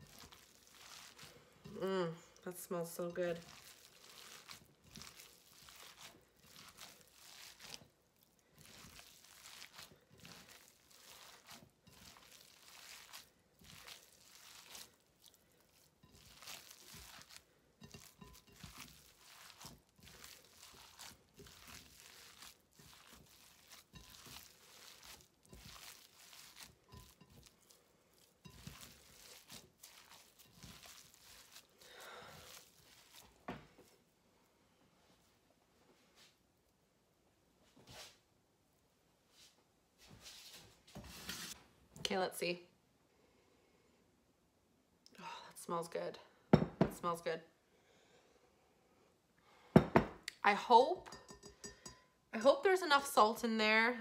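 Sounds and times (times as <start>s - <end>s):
hands squishing meat mixture: 0.0s - 34.1s.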